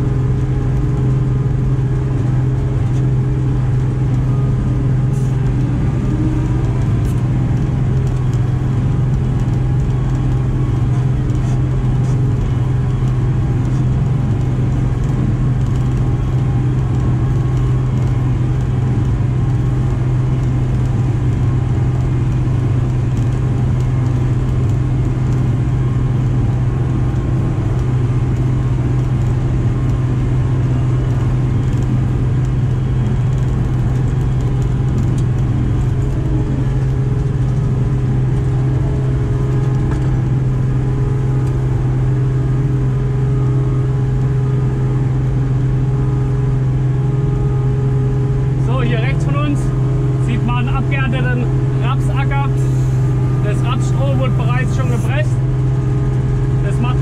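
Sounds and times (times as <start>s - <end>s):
farm vehicle engine humming: 0.0s - 57.0s.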